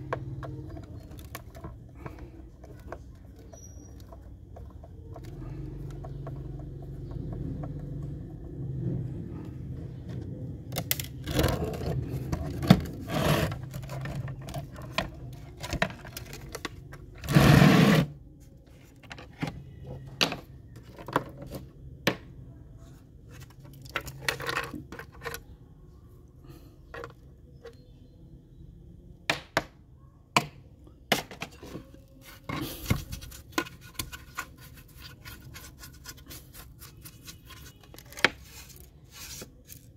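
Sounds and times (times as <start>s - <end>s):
plastic toy parts clicking and scraping: 0.0s - 8.5s, 10.1s - 18.1s, 23.2s - 25.6s, 26.8s - 27.8s, 31.3s - 39.9s.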